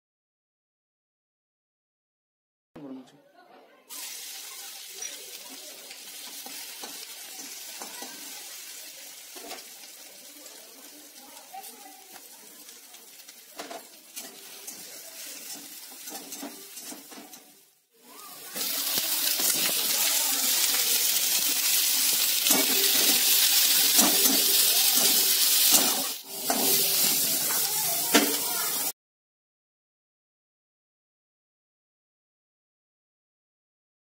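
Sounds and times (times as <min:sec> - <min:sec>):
spatula scraping wok: 0:03.9 - 0:28.9
cabbage frying in wok: 0:03.9 - 0:29.0
garlic sizzling in oil: 0:03.9 - 0:29.0.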